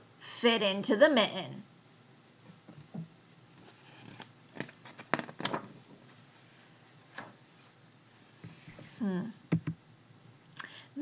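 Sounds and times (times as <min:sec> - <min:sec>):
clicks and taps handling a book: 0:04.0 - 0:05.7.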